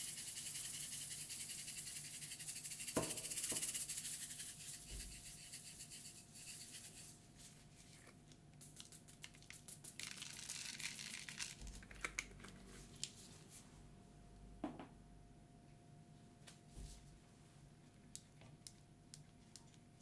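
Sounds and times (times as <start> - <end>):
shaker bottle of sprinkles rattling: 0.0 - 7.5, 8.6 - 13.2.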